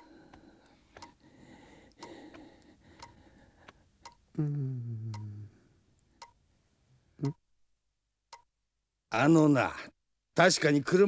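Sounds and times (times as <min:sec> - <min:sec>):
wall clock ticking: 0:00.0 - 0:04.4, 0:05.0 - 0:05.4.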